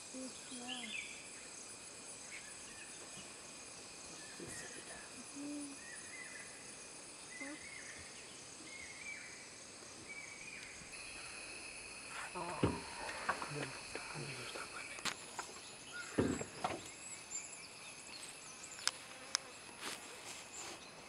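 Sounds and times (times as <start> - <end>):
high insect drone: 0.0 - 21.0
soft thump: 12.4 - 13.4, 16.1 - 16.9.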